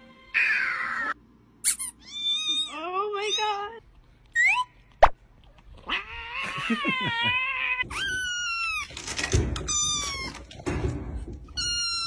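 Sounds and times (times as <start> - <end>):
cat yowling: 0.4 - 1.2
kitten screaming meows: 2.0 - 2.7.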